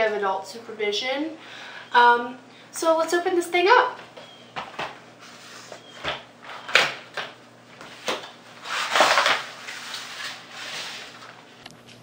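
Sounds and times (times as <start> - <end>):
scraping rub on table: 8.6 - 11.2.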